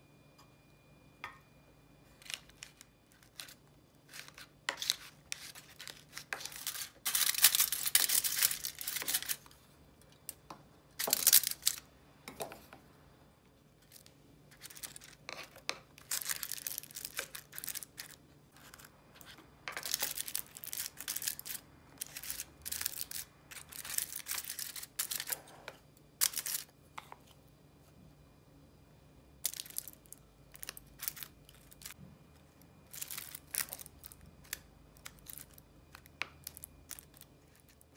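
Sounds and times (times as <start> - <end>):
foil and paper crinkling: 2.2 - 9.5, 13.8 - 25.4.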